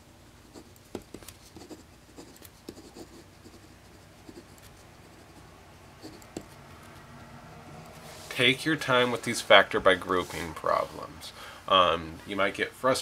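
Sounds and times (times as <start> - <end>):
pen scratching on paper: 0.4 - 6.6.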